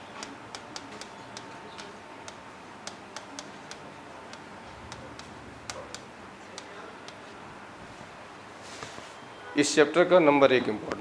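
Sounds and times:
stylus clicking on screen: 0:00.2 - 0:07.2.

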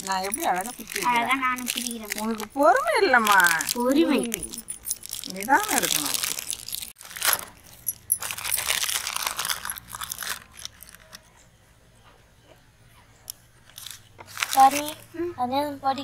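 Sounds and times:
foil wrappers crinkling: 0:00.0 - 0:11.3, 0:13.6 - 0:15.1.

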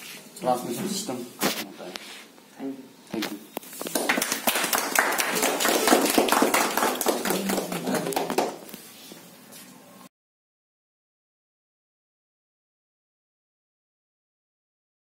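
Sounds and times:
people clapping: 0:03.7 - 0:08.9.

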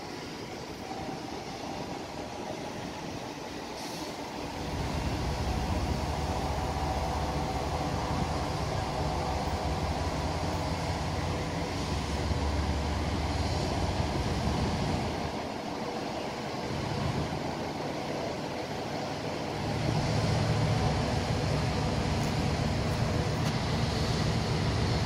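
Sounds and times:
hiss: 0:00.0 - 0:25.0
low vehicle rumble: 0:04.6 - 0:15.4, 0:19.4 - 0:25.0.

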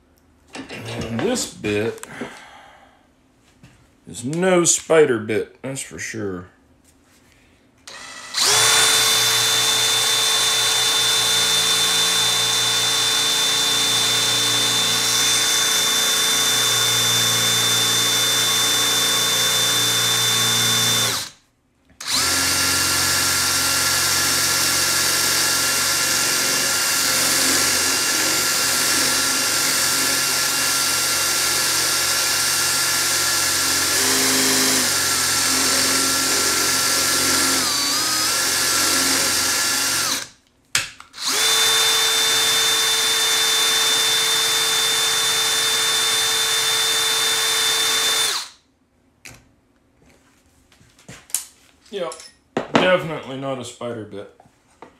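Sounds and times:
electric drill boring into metal: 0:07.9 - 0:21.4, 0:22.0 - 0:40.3, 0:41.2 - 0:48.5.

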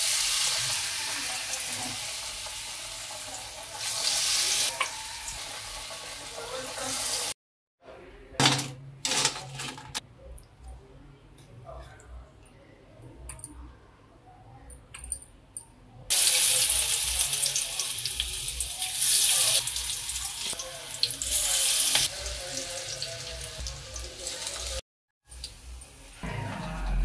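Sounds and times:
food sizzling in hot oil: 0:00.0 - 0:07.4, 0:16.1 - 0:26.2.

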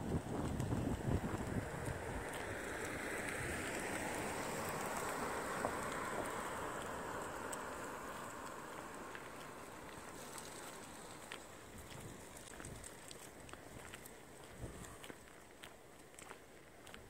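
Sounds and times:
car driving past: 0:01.1 - 0:11.6.

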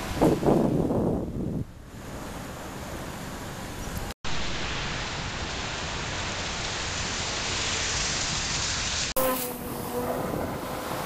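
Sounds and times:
wind on microphone: 0:00.0 - 0:01.9, 0:09.4 - 0:11.0
steady rain falling: 0:02.0 - 0:09.2.

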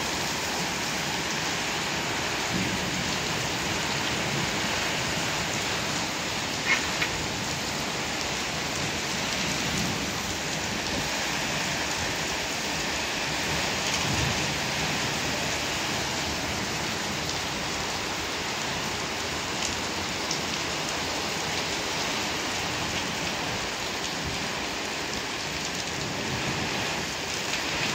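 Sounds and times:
heavy rain on pavement and cars: 0:00.0 - 0:27.9.

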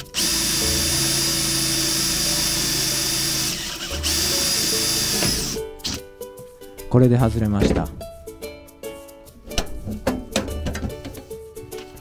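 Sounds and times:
cordless drill drilling: 0:00.0 - 0:06.0.

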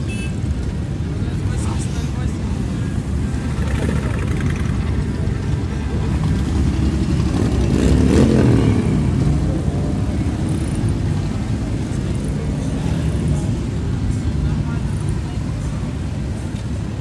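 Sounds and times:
motorcycles riding past: 0:02.8 - 0:15.4.

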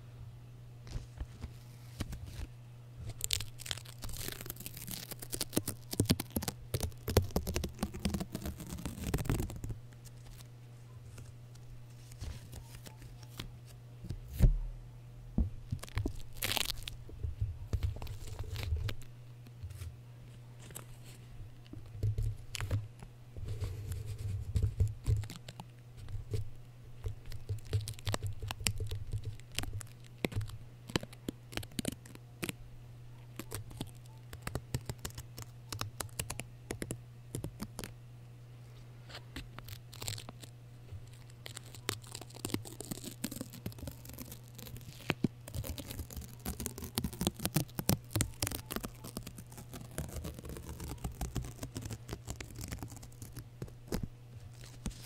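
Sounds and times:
tape peeling off microphone: 0:00.9 - 0:13.5, 0:15.6 - 0:19.9, 0:39.1 - 0:55.0.

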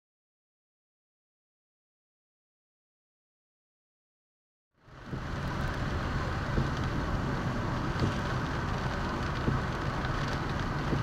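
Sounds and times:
road and engine rumble: 0:04.8 - 0:11.0
rain hitting car windshield: 0:04.9 - 0:11.0
ticks of raindrops: 0:05.0 - 0:11.0.

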